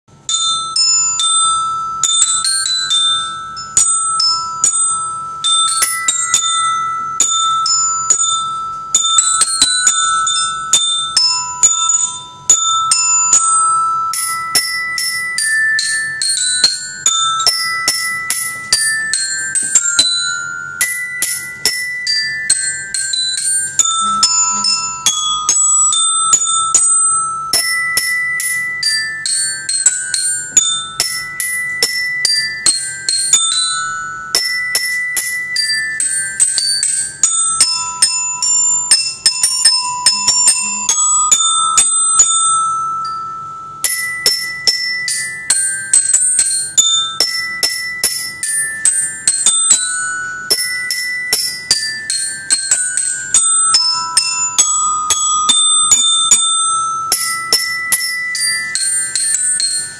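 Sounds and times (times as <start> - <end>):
glockenspiel melody: 0.1 - 59.9.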